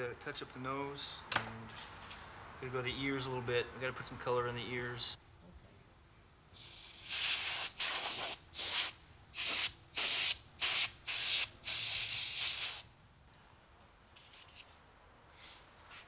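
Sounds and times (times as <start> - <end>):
airbrush hissing bursts: 6.6 - 12.9.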